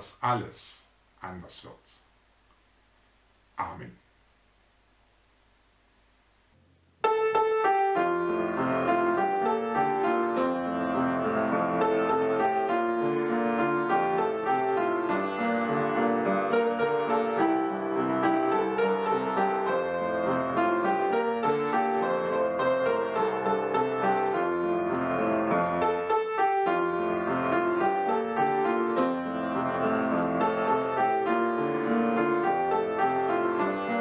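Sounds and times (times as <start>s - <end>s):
upright piano playing: 7.0s - 34.0s.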